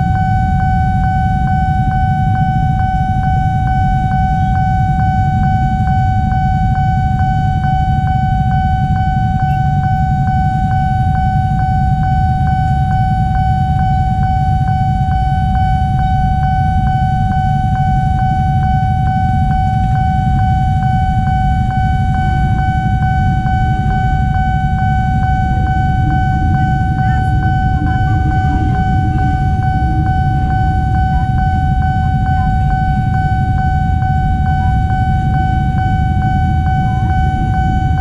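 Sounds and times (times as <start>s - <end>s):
level crossing alarm ringing: 0.0s - 38.0s
motorcycle engines idling: 3.8s - 11.5s, 20.6s - 38.0s.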